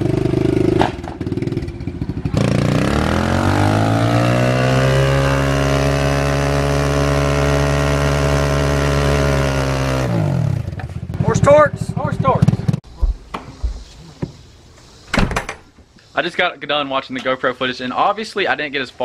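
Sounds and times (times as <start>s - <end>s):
motorcycle engine revving: 0.0s - 12.8s.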